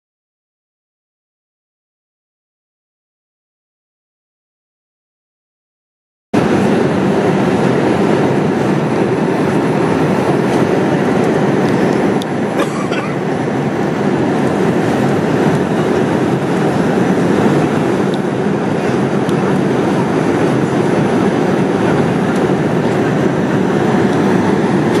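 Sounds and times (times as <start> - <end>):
airliner cabin rush: 6.4 - 25.0.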